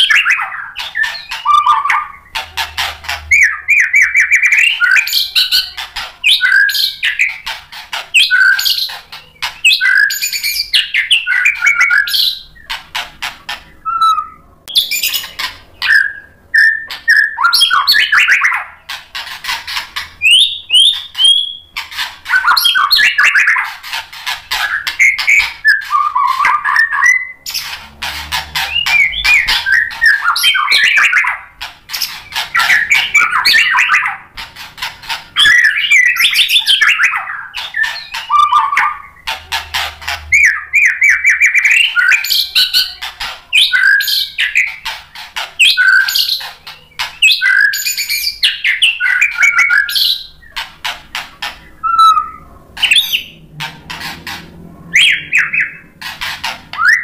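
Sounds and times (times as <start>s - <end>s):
harsh ticking bird chatter: 0.0s - 57.0s
bird singing whistles: 3.3s - 7.4s, 8.2s - 9.0s, 9.6s - 12.5s, 13.8s - 18.8s, 20.2s - 21.7s, 22.3s - 23.7s, 24.6s - 27.6s, 28.7s - 31.4s, 35.4s - 39.2s, 40.3s - 44.8s, 45.6s - 50.4s, 51.8s - 53.4s, 54.9s - 55.8s, 56.8s - 57.0s.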